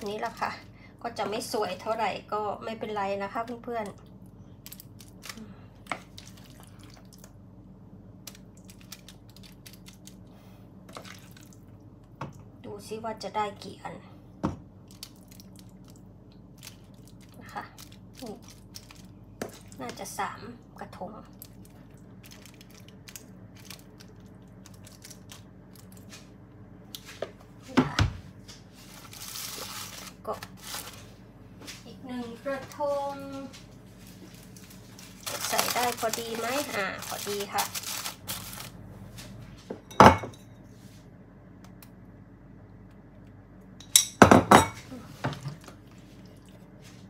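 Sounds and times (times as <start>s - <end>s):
faint steady hum: 0.0s - 47.0s
foil crinkling: 8.3s - 10.3s, 16.5s - 19.8s, 21.4s - 26.3s, 28.8s - 31.2s, 33.3s - 38.8s.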